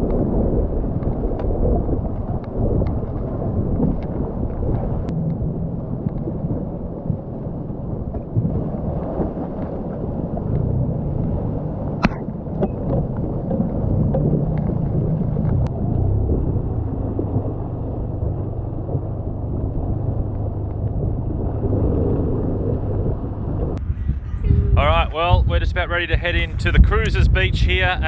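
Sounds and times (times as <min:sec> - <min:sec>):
sharp knock: 0:12.0 - 0:12.3.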